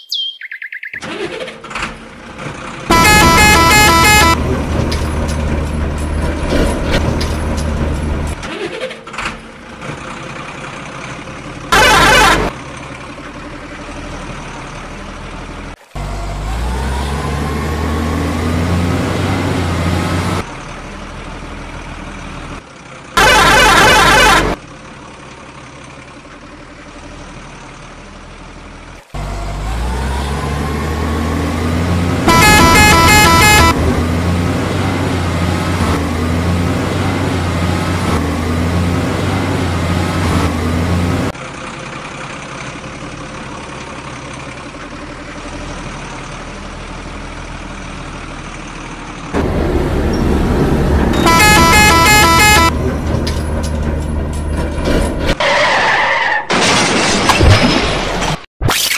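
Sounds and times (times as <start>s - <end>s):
truck engine running: 1.0s - 55.4s
truck horn blasts: 2.9s - 4.5s, 11.7s - 12.6s, 23.2s - 24.6s, 32.2s - 34.0s, 51.1s - 52.8s.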